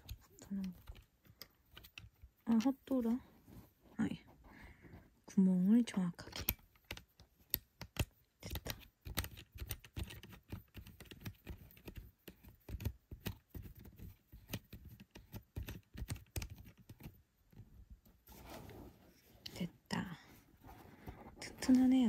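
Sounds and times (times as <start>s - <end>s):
small plastic parts clicking: 0.0s - 3.0s, 6.0s - 17.6s.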